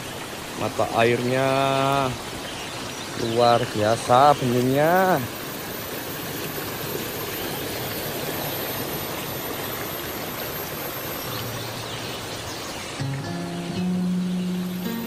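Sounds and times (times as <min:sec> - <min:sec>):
stream flowing over stones: 0:00.0 - 0:15.0
music: 0:13.0 - 0:15.0.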